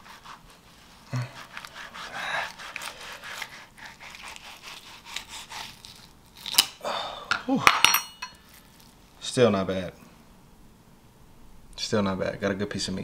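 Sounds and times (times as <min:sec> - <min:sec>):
knife scraping plastic cutting board: 0:00.0 - 0:06.1.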